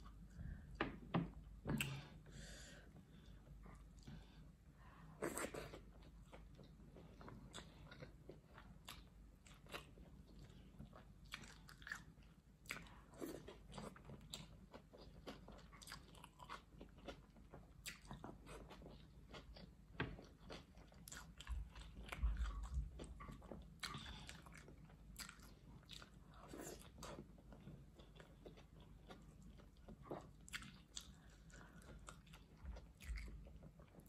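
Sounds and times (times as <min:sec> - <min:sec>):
chewing with wet mouth sounds: 0:05.2 - 0:34.0.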